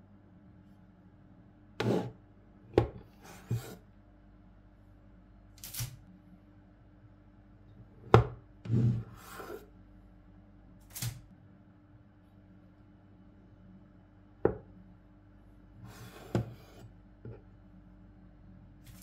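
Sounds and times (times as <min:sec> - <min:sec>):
knife slicing cookie dough: 0:01.8 - 0:02.2.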